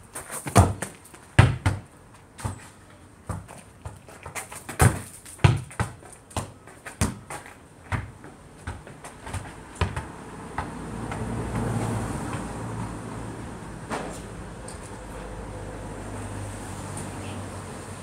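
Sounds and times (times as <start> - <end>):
football kicked and bouncing: 0.2 - 12.6.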